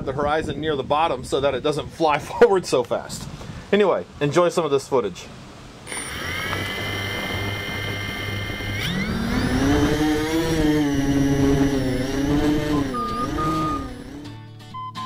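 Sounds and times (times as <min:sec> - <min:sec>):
drone motors whining: 0:05.9 - 0:14.4.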